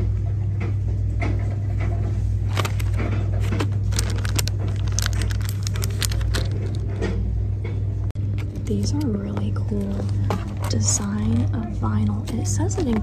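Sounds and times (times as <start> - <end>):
steady low hum: 0.0 - 13.0
plastic packaging crinkling: 2.4 - 7.1, 9.8 - 13.0.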